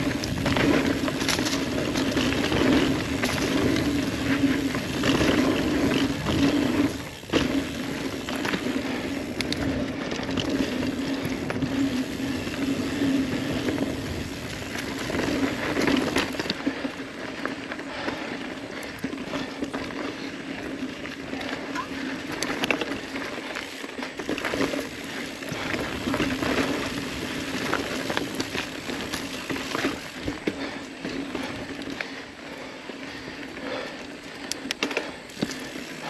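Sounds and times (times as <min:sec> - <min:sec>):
bike knocks and rattles: 0:00.0 - 0:16.5
bike tyres rolling on dirt: 0:00.0 - 0:36.0.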